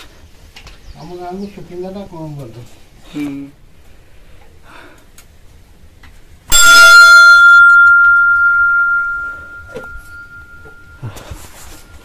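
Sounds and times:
temple bell ringing: 0:06.5 - 0:12.0.

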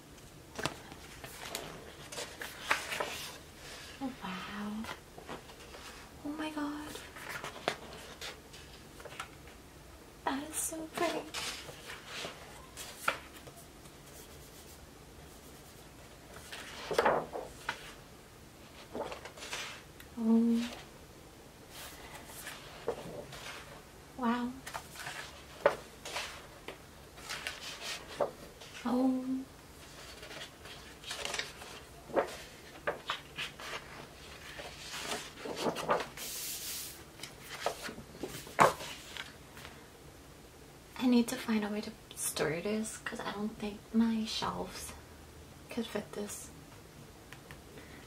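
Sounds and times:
book pages flipping: 0:00.2 - 0:03.9, 0:06.8 - 0:09.6, 0:10.9 - 0:18.0, 0:18.6 - 0:19.9, 0:21.7 - 0:23.8, 0:24.6 - 0:28.8, 0:29.8 - 0:39.8
paper sliding hiss: 0:29.8 - 0:39.7
page turning swish: 0:30.1 - 0:39.3.

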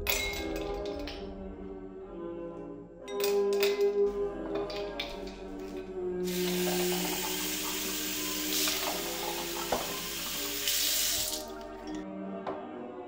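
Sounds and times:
tap water filling glass: 0:06.3 - 0:11.6.

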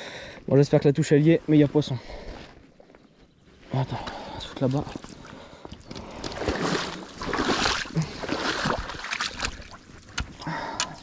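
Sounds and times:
water sloshing and splashing: 0:04.6 - 0:11.0.

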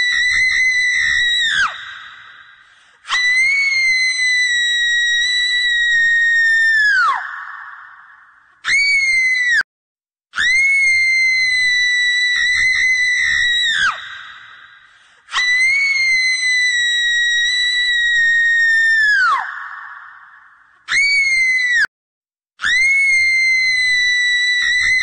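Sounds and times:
shrill high-pitched screams: 0:00.0 - 0:09.7, 0:10.4 - 0:21.9, 0:22.6 - 0:25.0.

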